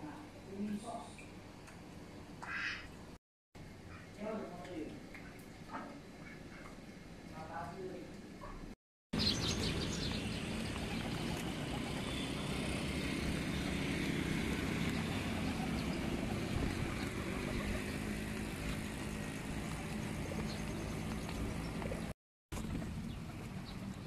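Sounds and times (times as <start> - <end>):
low traffic hum: 9.2 - 24.0.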